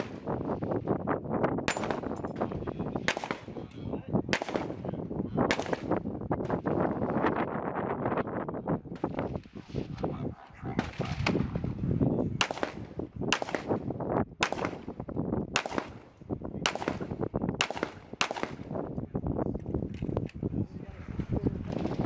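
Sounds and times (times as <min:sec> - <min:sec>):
pistol shots: 0:00.0 - 0:00.4, 0:01.6 - 0:03.6, 0:04.3 - 0:06.7, 0:12.4 - 0:13.8, 0:14.4 - 0:18.8.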